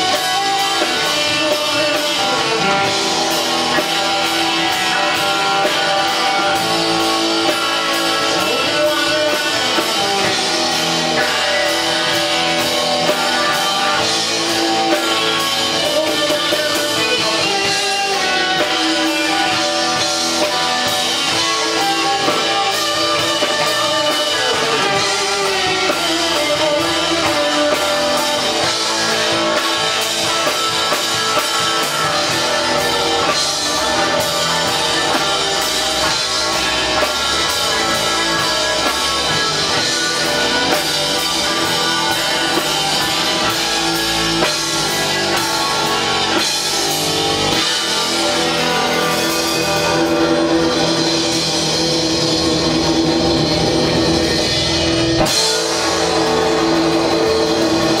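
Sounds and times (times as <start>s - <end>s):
drum kit: 0.0s - 58.0s
electric guitars: 0.0s - 58.0s.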